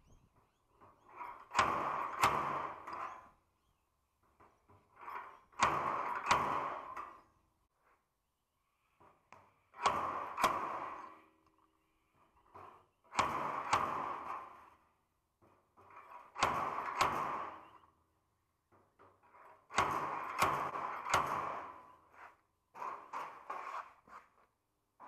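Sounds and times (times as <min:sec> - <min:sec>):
hammer blows on sheet steel: 0:00.8 - 0:03.3, 0:04.6 - 0:07.3, 0:09.7 - 0:11.3, 0:12.5 - 0:14.8, 0:15.4 - 0:17.9, 0:19.0 - 0:24.4.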